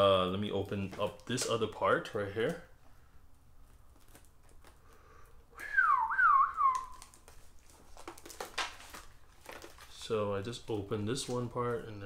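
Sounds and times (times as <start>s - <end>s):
person whistling: 5.5s - 7.0s.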